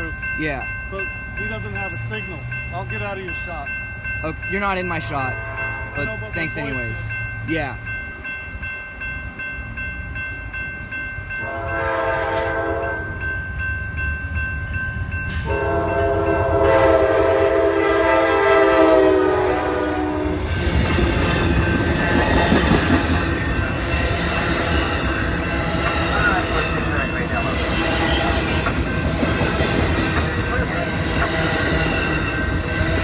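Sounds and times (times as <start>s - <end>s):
train wheels rumbling on rails: 0.0s - 33.0s
train horn blasts: 5.3s - 6.0s, 11.4s - 13.1s, 15.3s - 20.6s.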